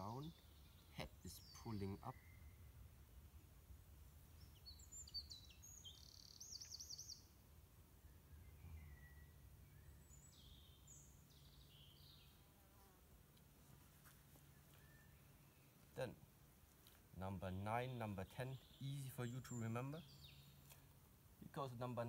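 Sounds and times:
faint low steady hum: 0.0 - 22.0.

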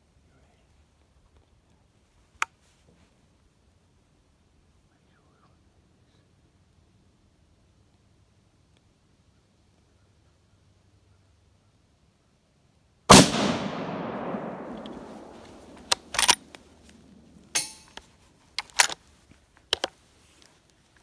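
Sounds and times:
rifle shot echoing: 13.1 - 17.9
sharp clicks and knocks: 14.7 - 19.0.

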